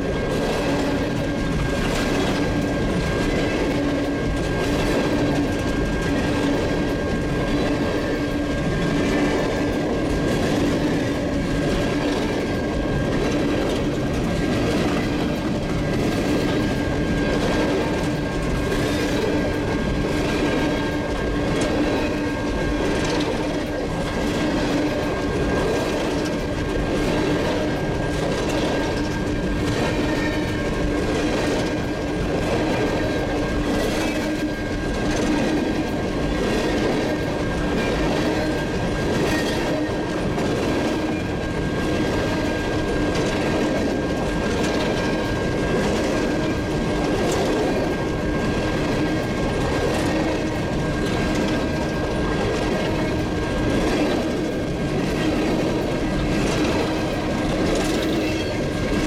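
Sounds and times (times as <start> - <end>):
steel wheels rumbling on rail: 0.0 - 59.0.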